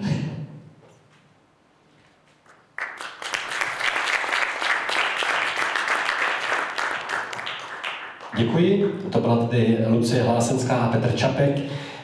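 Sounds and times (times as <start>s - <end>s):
audience applauding: 2.8s - 8.5s.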